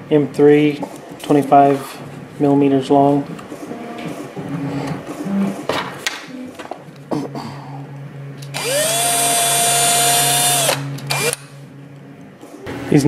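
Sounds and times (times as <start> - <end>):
electric drill whine: 8.5 - 11.4.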